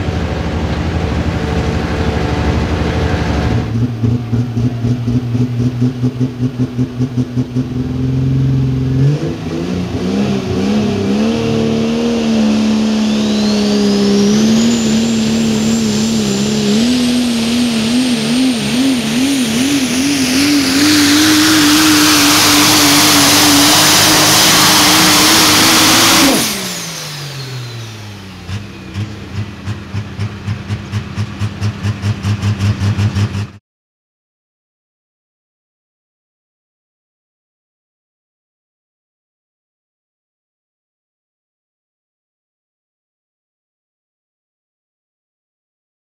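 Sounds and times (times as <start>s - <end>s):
diesel truck engine at full throttle: 0.0s - 33.6s
turbo whistle: 12.4s - 17.6s.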